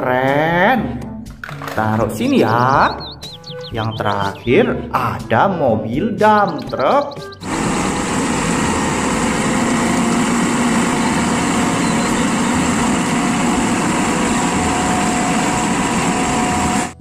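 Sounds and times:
truck engine running: 2.6s - 4.4s, 6.2s - 17.0s
hydraulic hoist raising: 7.4s - 17.0s
soil tipping out: 7.4s - 17.0s.

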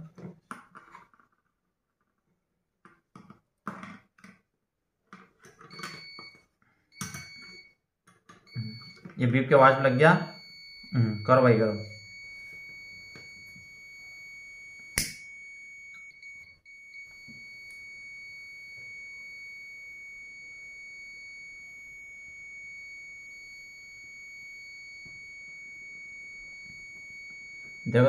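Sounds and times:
multimeter continuity beep: 5.7s - 7.8s, 8.5s - 28.0s
sharp click: 15.0s - 15.3s.

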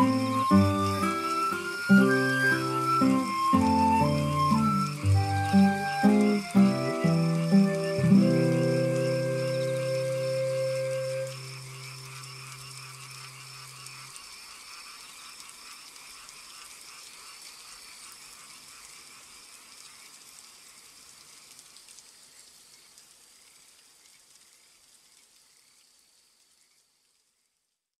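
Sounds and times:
frogs and insects chorus: 0.0s - 27.5s.

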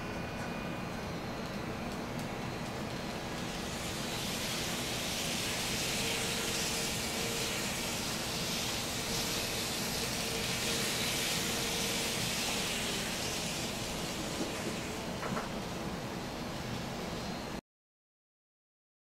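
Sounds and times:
model train motor whirring: 2.2s - 15.5s.

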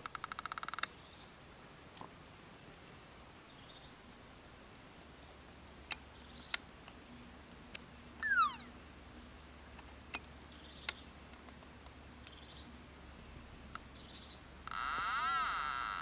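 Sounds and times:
chirp sliding down in pitch: 8.2s - 8.7s.

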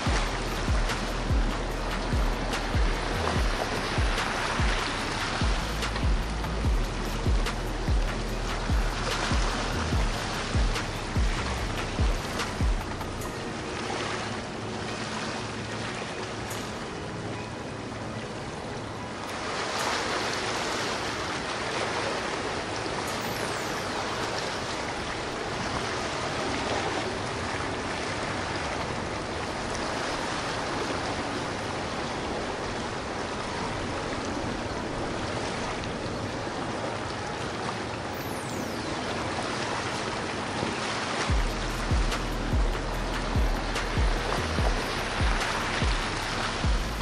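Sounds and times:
boat engines running: 0.0s - 19.1s, 39.0s - 47.0s
boat wake water splashing: 0.0s - 47.0s.

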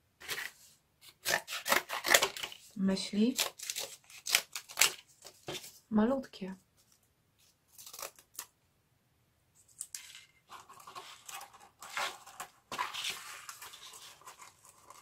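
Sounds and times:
scissors cutting cardboard: 0.2s - 2.6s, 9.9s - 15.0s
cardboard scraping: 10.0s - 15.0s.

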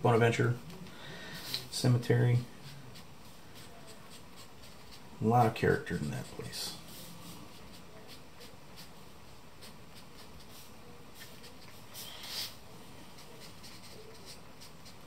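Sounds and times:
charcoal scratching on paper: 2.6s - 9.0s, 9.6s - 15.0s.

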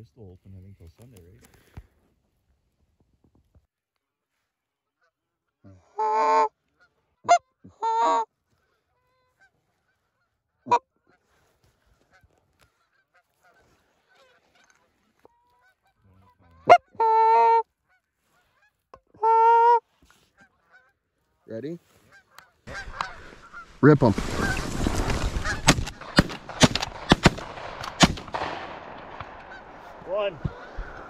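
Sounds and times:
goose clucking: 5.9s - 11.3s, 12.0s - 21.0s, 22.0s - 28.0s, 28.9s - 31.0s
goose honking: 5.9s - 11.3s, 12.0s - 21.0s, 22.0s - 28.0s, 29.1s - 31.0s.

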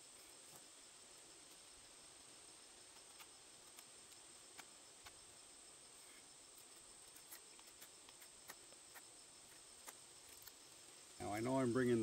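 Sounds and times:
high-pitched insect trill: 0.0s - 12.0s.

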